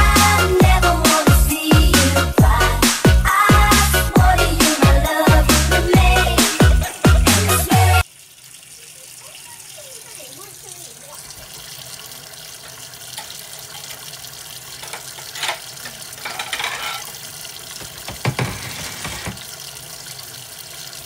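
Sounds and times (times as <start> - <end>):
tap running into sink: 17.7 - 19.5
knocks and clatters: 17.8 - 19.4.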